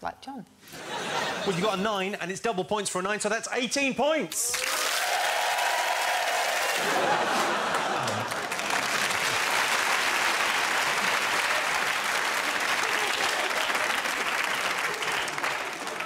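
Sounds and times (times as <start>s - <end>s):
audience applauding: 4.5s - 16.0s.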